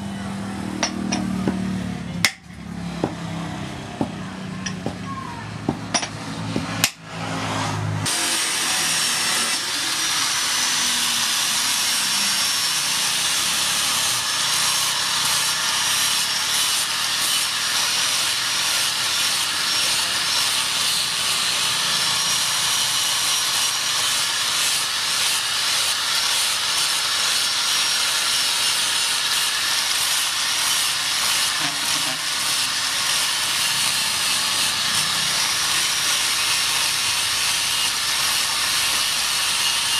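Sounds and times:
angle grinder grinding steel: 0.0s - 39.9s.

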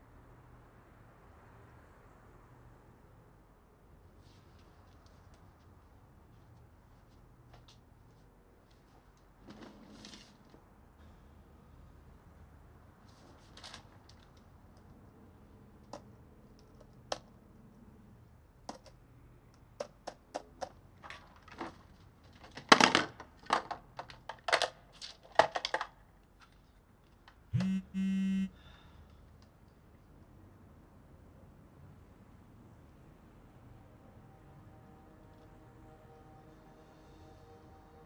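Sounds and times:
buzzy electronic tone: 27.6s - 28.5s.

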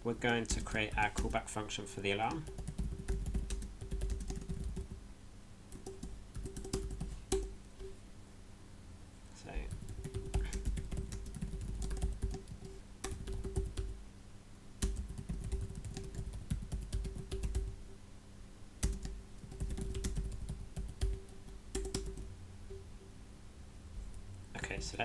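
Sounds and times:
typing on computer keyboard: 2.3s - 5.0s, 5.7s - 7.9s, 9.7s - 14.0s, 14.8s - 17.7s, 18.8s - 22.3s.

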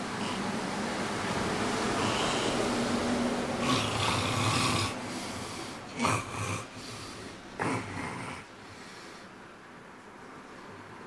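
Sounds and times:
man snoring loudly: 3.6s - 8.5s.

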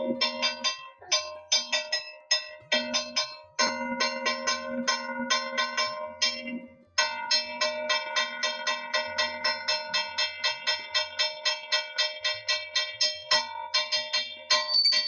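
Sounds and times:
hand bell ringing rapidly: 14.5s - 15.0s
higher brighter bell ring: 14.5s - 15.0s.

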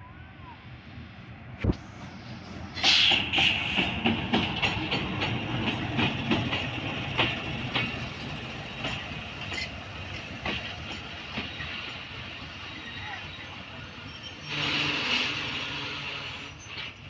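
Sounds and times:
train rolling past: 0.0s - 17.0s
wheels clicking over rail joints: 2.9s - 11.8s.

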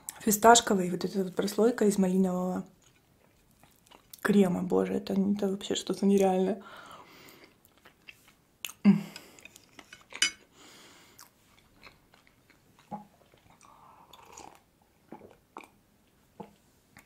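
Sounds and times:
chewing soft cake: 2.6s - 4.3s, 7.3s - 17.0s
lip smacks and mouth clicks: 7.4s - 9.9s.

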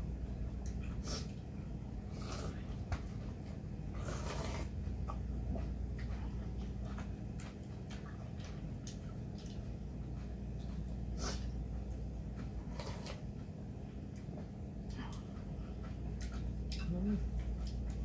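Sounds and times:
slurping noodles: 3.9s - 4.8s.

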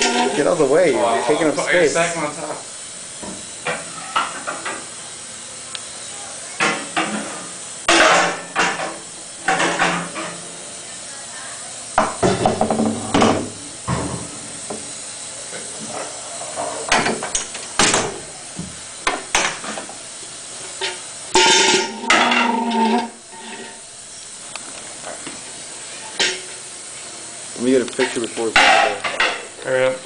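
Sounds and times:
metal chairs clanking: 0.0s - 1.6s, 20.8s - 23.8s, 28.0s - 29.4s
steady hiss: 0.0s - 30.0s.

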